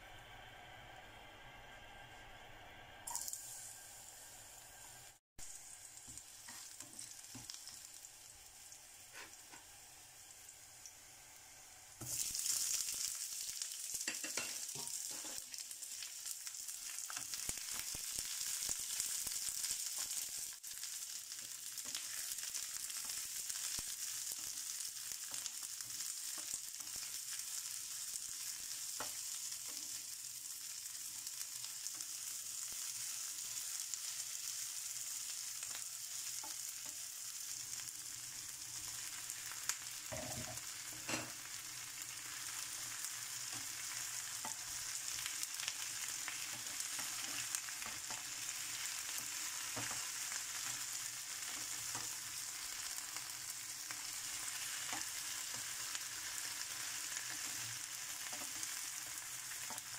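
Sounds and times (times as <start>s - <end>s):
garlic and onion sizzling in oil: 0.0s - 59.9s
wooden spatula scraping and tapping: 9.1s - 9.7s.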